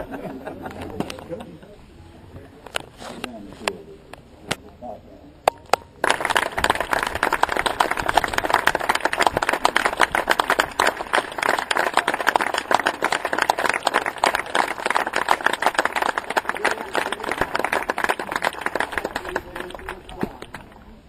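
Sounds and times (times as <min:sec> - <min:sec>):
crowd applauding: 0:06.0 - 0:20.8.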